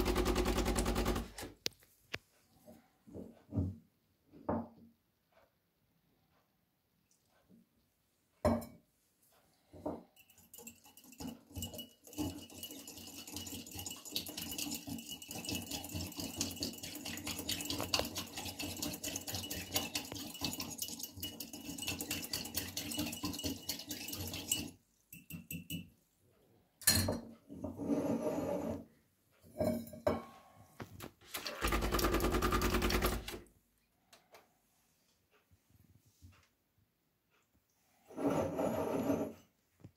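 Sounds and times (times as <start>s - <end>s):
whisk clinking in mug: 10.1s - 25.9s.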